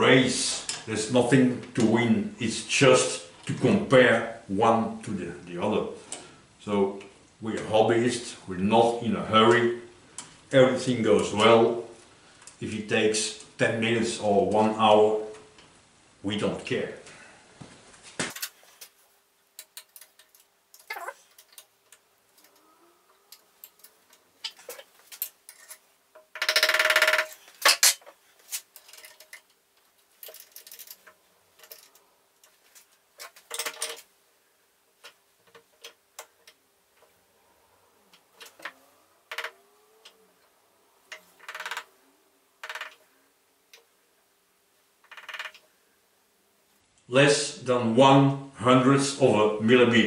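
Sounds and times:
faint steady hum: 0.0s - 48.8s
metal tools clicking and knocking: 19.6s - 22.6s, 23.3s - 29.6s, 30.2s - 32.6s, 33.2s - 34.1s, 41.1s - 41.9s
metal clatter: 30.2s - 32.0s.

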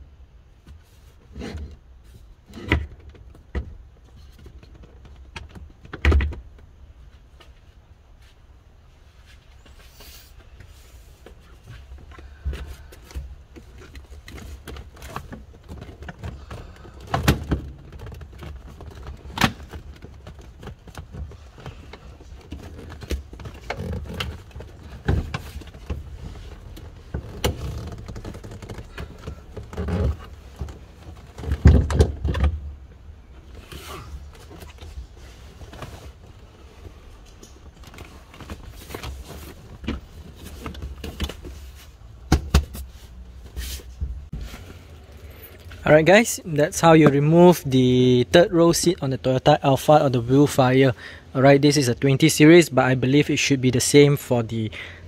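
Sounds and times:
rustling and shuffling: 0.5s - 54.7s
seat frame clunks and knocks: 11.7s - 32.8s.

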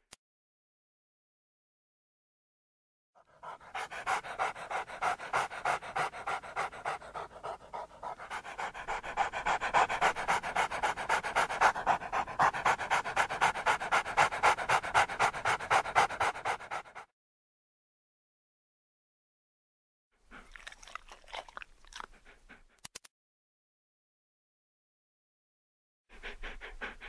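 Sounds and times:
dog panting rapidly: 3.2s - 17.1s, 22.0s - 22.8s, 26.1s - 27.0s.

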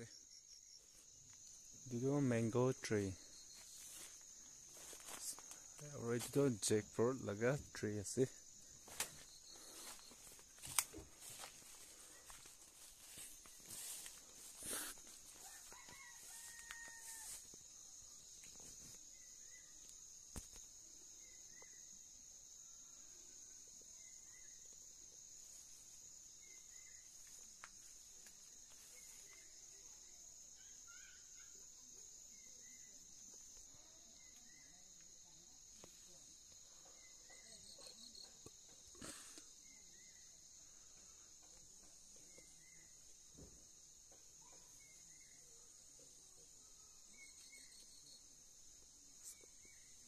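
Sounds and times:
high insect drone: 0.0s - 50.0s
rustles in vegetation: 3.2s - 6.7s, 8.5s - 17.6s, 25.3s - 29.8s
faint rooster crow: 15.3s - 17.6s.

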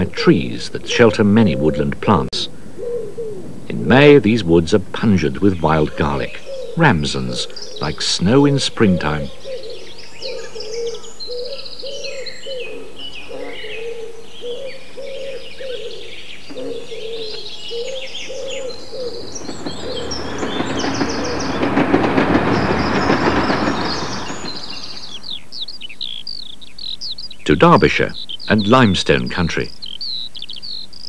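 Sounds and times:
small birds chirping: 0.0s - 31.0s
low repeating bird note: 16.5s - 25.6s
train rumbling past: 18.5s - 25.5s.

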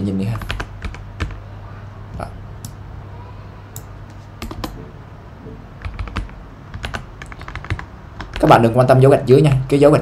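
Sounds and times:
computer keyboard typing: 0.3s - 1.4s, 3.8s - 4.8s, 5.8s - 8.6s.

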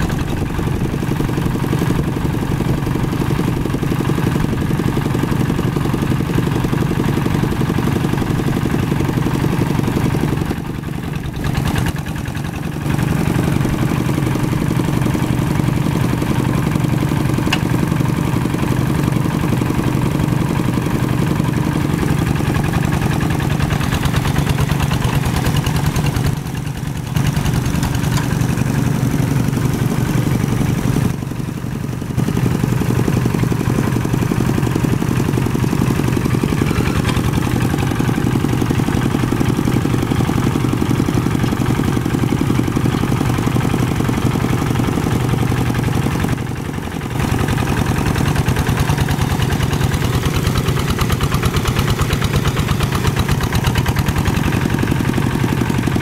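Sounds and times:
diesel engine running under load: 0.0s - 56.0s
wheels churning through mud: 0.0s - 56.0s.

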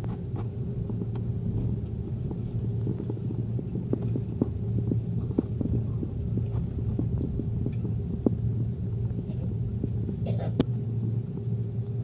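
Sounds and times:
airliner engine and rolling hum: 0.0s - 12.0s.

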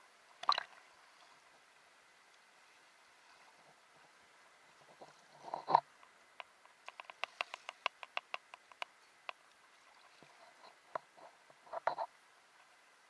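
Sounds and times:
water splash: 0.4s - 0.8s
sharp little clicks: 6.4s - 8.9s.

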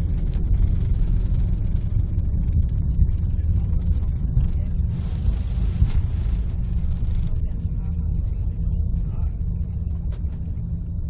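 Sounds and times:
airliner engines and wheels rumbling: 0.0s - 11.0s.

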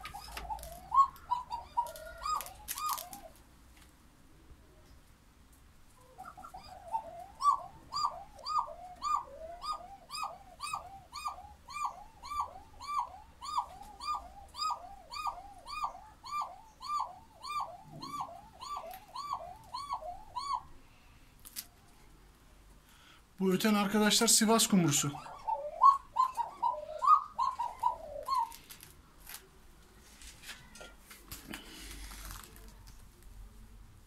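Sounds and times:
dove cooing: 0.0s - 3.4s, 6.0s - 20.8s, 24.6s - 28.8s.

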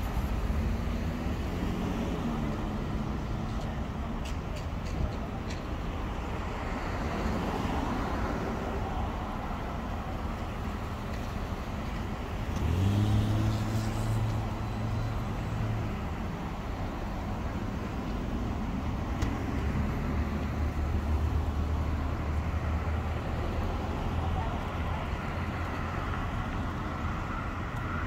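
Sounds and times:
hum of passing cars: 0.0s - 28.0s
vehicle accelerating past: 12.6s - 14.9s.

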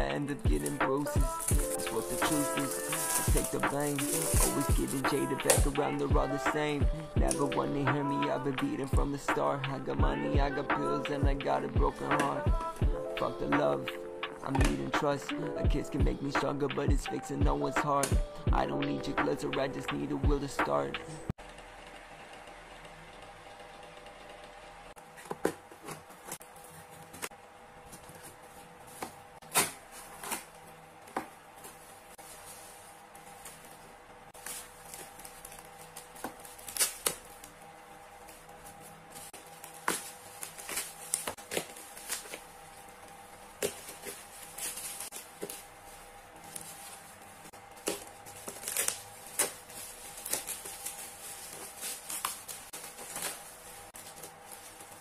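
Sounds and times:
plastic wrap crinkling: 0.3s - 5.7s, 29.8s - 55.0s
tape peeling: 0.5s - 5.7s, 31.6s - 55.0s.

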